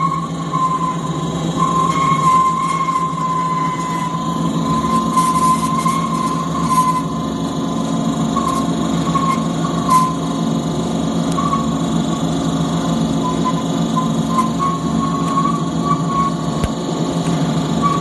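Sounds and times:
high wavering whine: 0:00.0 - 0:18.0
thread rolling machine humming: 0:00.0 - 0:18.0.

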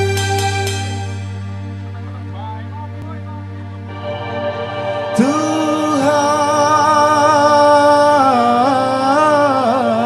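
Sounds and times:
live band music: 0:00.0 - 0:02.3, 0:03.7 - 0:08.6
male singer with vibrato: 0:05.1 - 0:10.0.

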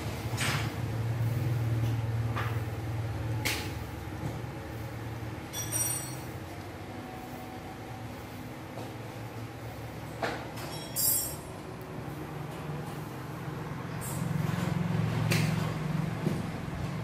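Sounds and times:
high-pitched clink: 0:05.5 - 0:06.4, 0:10.6 - 0:11.5.

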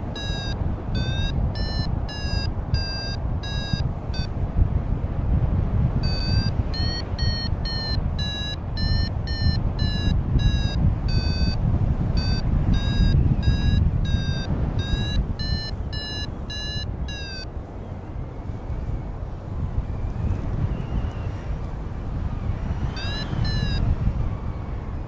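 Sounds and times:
variometer short high beeps: 0:00.0 - 0:04.3, 0:06.0 - 0:11.6, 0:12.2 - 0:17.5, 0:22.9 - 0:23.9
wind on microphone: 0:00.0 - 0:25.0.

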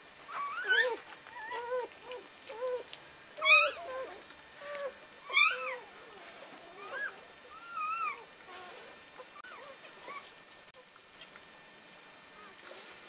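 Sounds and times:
puppies crying: 0:00.3 - 0:10.4.

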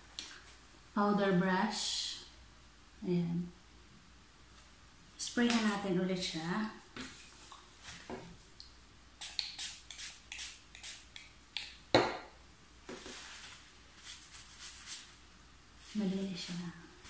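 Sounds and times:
spray bottle hissing: 0:09.2 - 0:11.2
brush rustling on tissue: 0:12.8 - 0:17.0.

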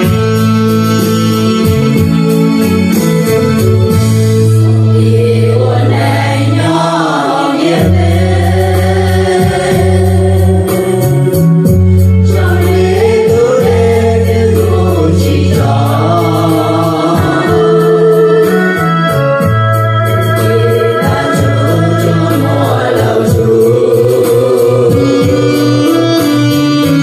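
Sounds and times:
low accompaniment notes: 0:00.0 - 0:27.0
person singing: 0:04.6 - 0:19.4, 0:20.0 - 0:27.0.

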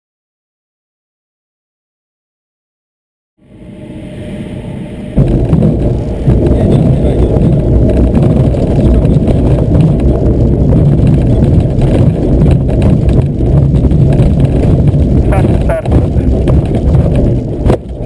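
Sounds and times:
wheel rumbling over bumpy grass: 0:05.2 - 0:18.0.

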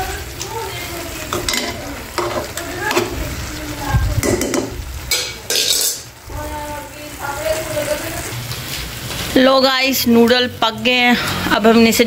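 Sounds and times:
food sizzling: 0:00.0 - 0:12.0
metal spoon scraping a pan: 0:04.2 - 0:06.1.

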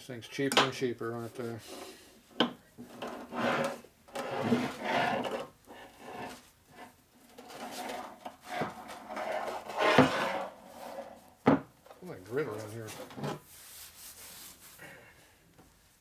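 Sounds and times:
cloth rag scrubbing metal: 0:12.3 - 0:14.8.

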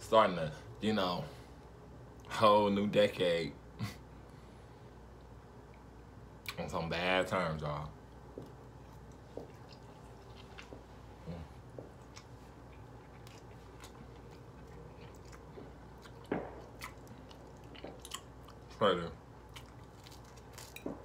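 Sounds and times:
person chewing food: 0:08.1 - 0:21.0.

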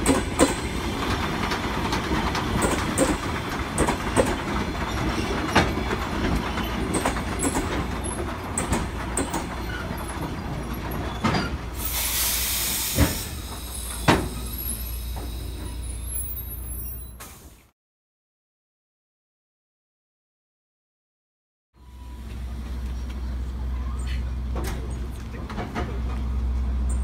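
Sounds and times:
wheels clacking over rail joints: 0:00.0 - 0:11.8, 0:24.3 - 0:27.0
train rumbling: 0:00.0 - 0:17.6, 0:21.8 - 0:27.0
compressed air hiss: 0:11.8 - 0:14.1.

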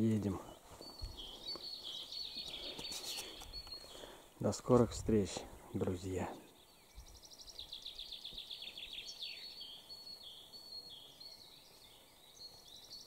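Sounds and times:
songbird trilling and whistling: 0:06.5 - 0:13.0.

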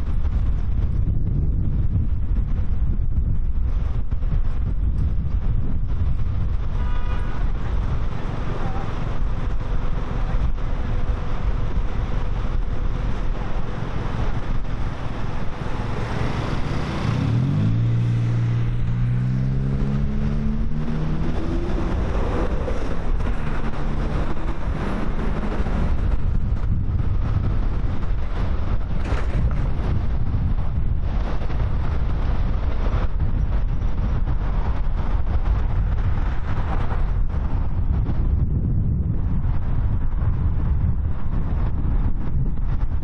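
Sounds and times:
wind rumbling on microphone: 0:00.0 - 0:43.0
engine revving: 0:13.7 - 0:31.9.

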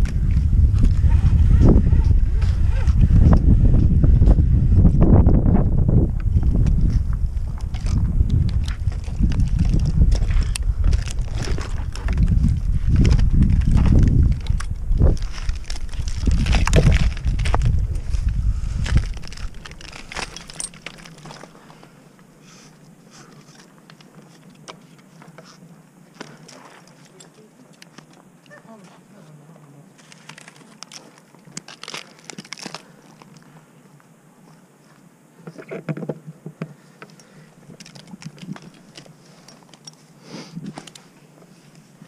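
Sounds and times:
wind buffeting microphone: 0:00.0 - 0:21.0
climbing gear clicking and scraping: 0:06.2 - 0:22.0, 0:30.0 - 0:33.5, 0:36.9 - 0:42.0.

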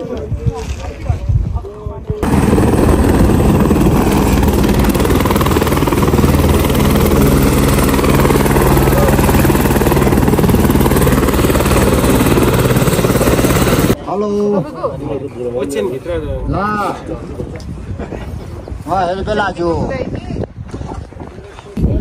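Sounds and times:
helicopter rotor beating: 0:02.2 - 0:14.0.

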